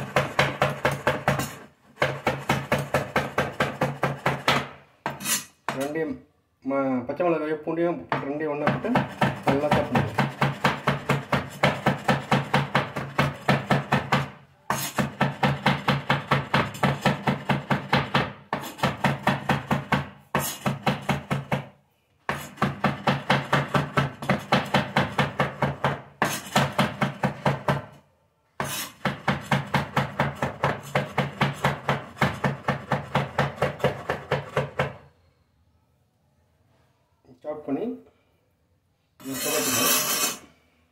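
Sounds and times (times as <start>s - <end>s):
knife chopping on wooden board: 0.0s - 5.9s, 8.1s - 21.7s, 22.3s - 28.0s, 28.6s - 35.0s.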